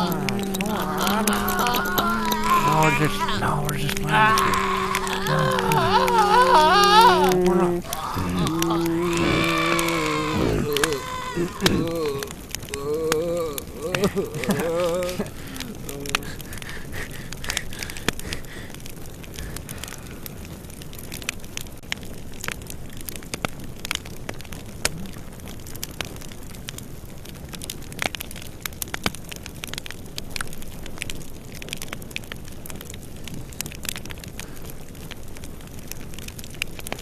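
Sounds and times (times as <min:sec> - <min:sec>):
steady hiss: 0:00.0 - 0:21.2.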